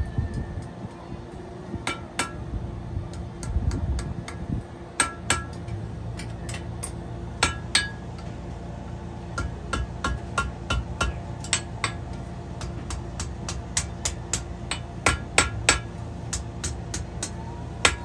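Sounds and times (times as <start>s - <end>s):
hammer striking steel on anvil: 1.8s - 2.4s, 5.0s - 8.2s, 9.4s - 18.0s.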